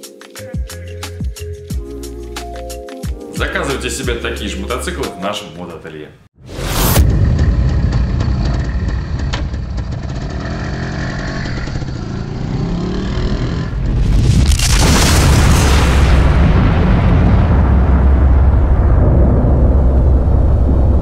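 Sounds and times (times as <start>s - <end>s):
whoosh into boom-like rush: 6.4s - 10.2s, 13.7s - 21.0s
low rumble with rising tone: 6.4s - 14.7s, 16.0s - 21.0s.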